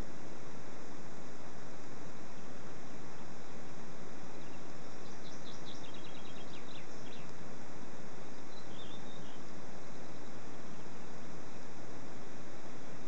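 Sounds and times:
microphone hiss: 0.0 - 13.0
bird chirping: 4.2 - 7.4, 8.2 - 11.6.

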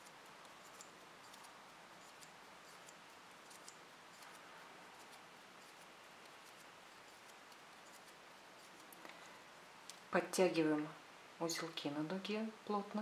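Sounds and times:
thread ticking and rustling: 0.0 - 10.1.

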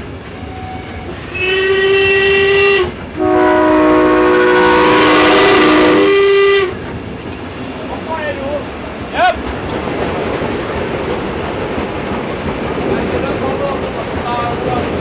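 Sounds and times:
locomotive horn blasts: 0.4 - 6.8.

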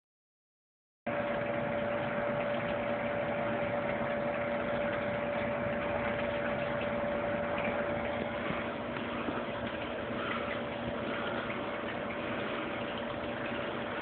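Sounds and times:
steady mechanical hum: 1.1 - 14.0.

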